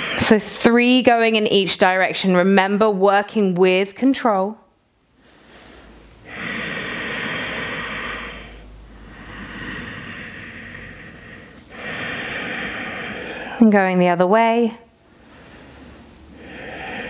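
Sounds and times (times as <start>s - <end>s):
woman breathing deeply: 0.0s - 0.3s, 5.1s - 13.6s, 15.0s - 17.0s.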